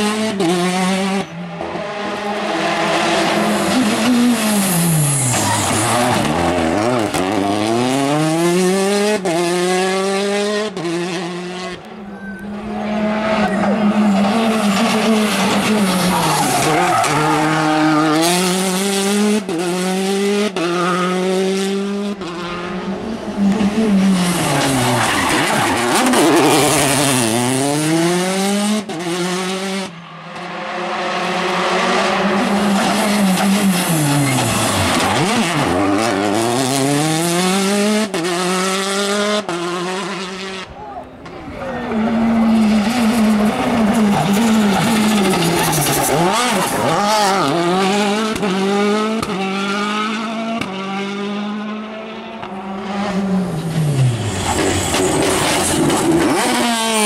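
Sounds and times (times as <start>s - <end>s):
rally car engines accelerating: 0.0s - 57.0s
tyres squealing and skidding: 3.2s - 7.3s, 12.0s - 18.2s, 23.4s - 27.5s, 32.2s - 36.5s, 40.8s - 47.8s, 53.5s - 57.0s.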